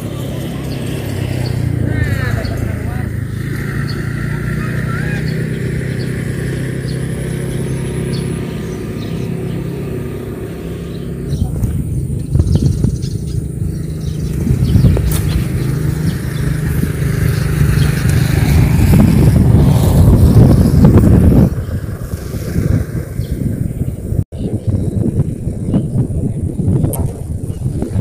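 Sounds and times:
small engine running: 0.0s - 23.9s
wind buffeting microphone: 0.0s - 28.0s.

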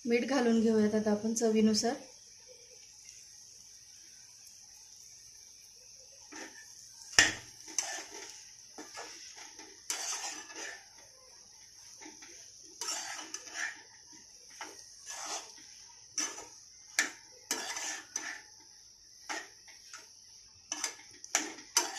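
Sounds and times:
spoon scraping in a metal pan: 6.2s - 20.1s, 20.7s - 21.9s.

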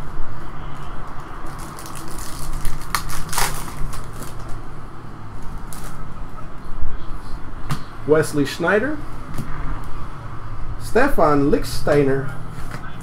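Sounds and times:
foil wrapper tearing and crinkling: 1.5s - 4.5s.

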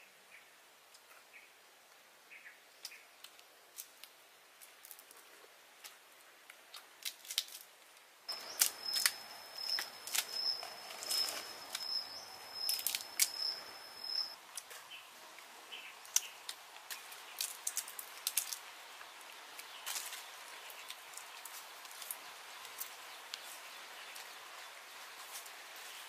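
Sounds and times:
fruits cracking and snapping: 6.6s - 12.0s, 12.6s - 13.5s, 16.0s - 23.5s
high thin pulsing call: 8.3s - 14.4s.

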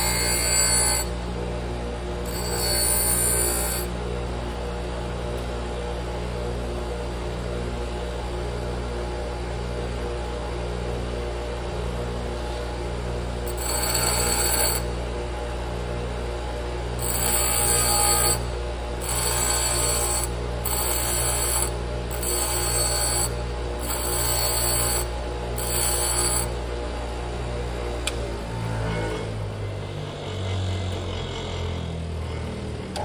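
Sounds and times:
bench grinder humming: 0.0s - 5.5s, 12.0s - 33.0s.

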